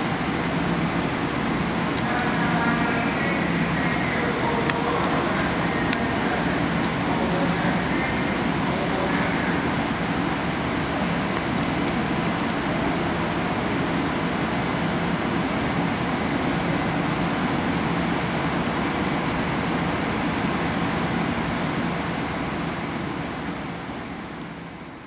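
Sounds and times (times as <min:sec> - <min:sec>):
electric train rumbling: 0:00.0 - 0:25.0.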